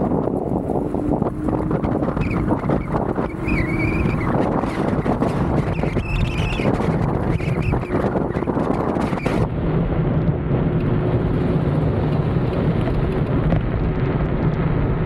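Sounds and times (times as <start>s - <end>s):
faint wavering whine: 0.0s - 8.4s
wind rushing over microphone: 0.0s - 15.0s.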